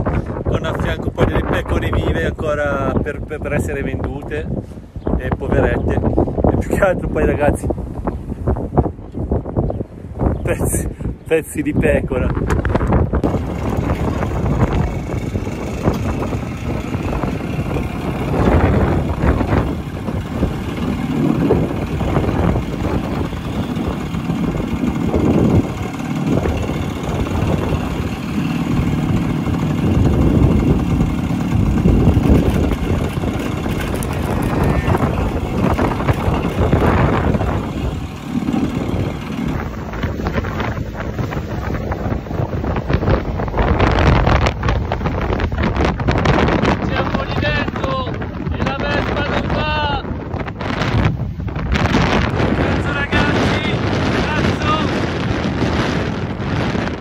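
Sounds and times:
wind buffeting microphone: 0.0 - 57.0
road noise: 12.2 - 57.0
scooter engine: 13.2 - 45.4.

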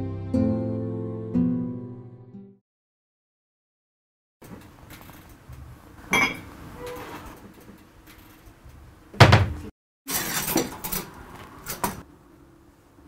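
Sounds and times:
crockery clinking: 6.1 - 6.5
knock: 9.2 - 9.6
cabinet door shutting: 9.2 - 9.7.

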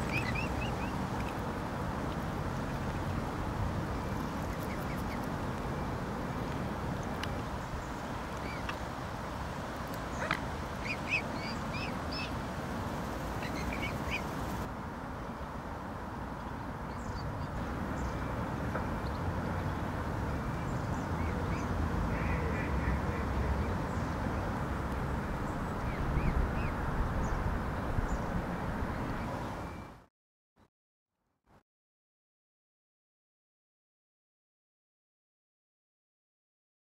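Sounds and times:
waterfowl calling: 0.0 - 1.0, 10.1 - 12.3, 13.4 - 14.4, 22.1 - 23.7.

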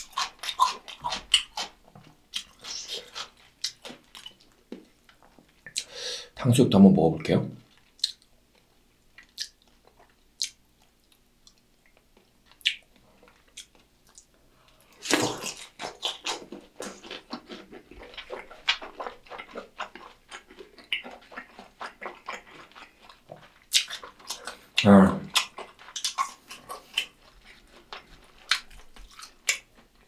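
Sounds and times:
biting and chewing food: 0.0 - 5.9, 7.7 - 30.0.

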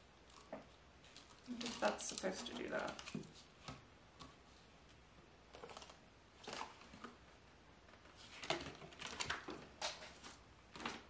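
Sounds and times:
paper rustling: 7.9 - 11.0.

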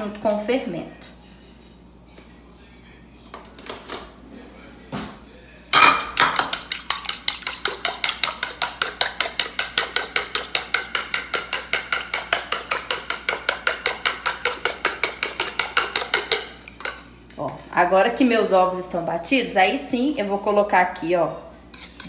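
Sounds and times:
whisk clicking against bowl: 6.2 - 17.0.

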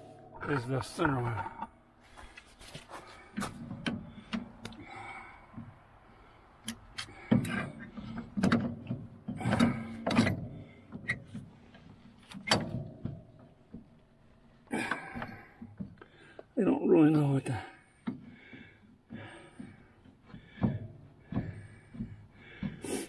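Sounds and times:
metal clanks and knocks: 7.0 - 14.2, 18.0 - 23.0.

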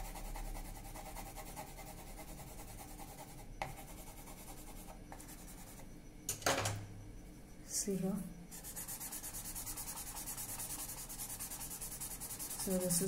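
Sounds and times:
pencil scratching on paper: 0.0 - 5.8, 8.5 - 13.0.

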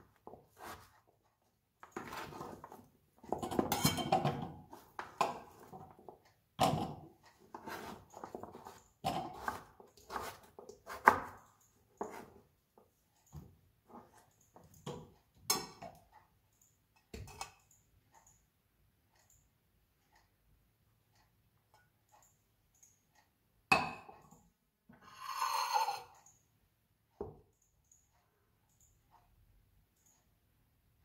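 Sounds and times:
knife chopping on cutting board: 9.1 - 11.4.

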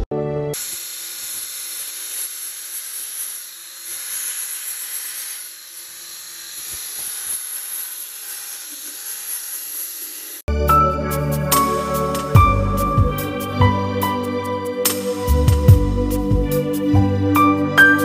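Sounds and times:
high-pitched hiss: 0.6 - 10.4.

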